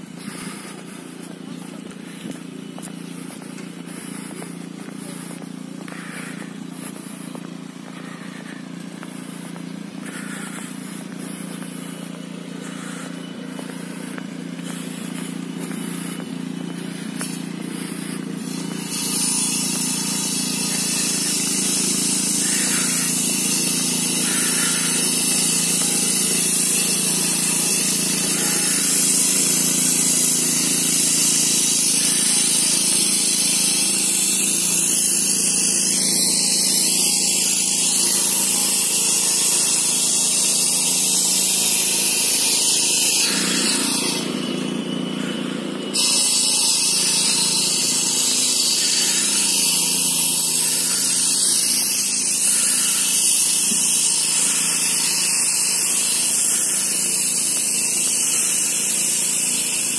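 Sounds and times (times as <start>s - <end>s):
low machine hum: 0.0s - 23.2s
hiss: 5.9s - 59.9s.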